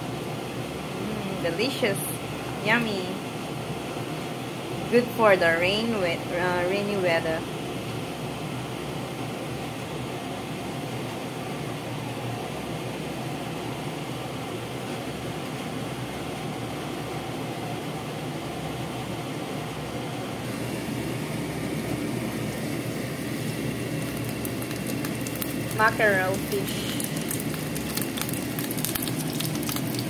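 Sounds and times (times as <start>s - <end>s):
fish frying in oil: 20.4s - 30.0s
pot of soup simmering: 20.5s - 25.8s, 26.6s - 30.0s
oil spatter crackles: 20.5s - 30.0s.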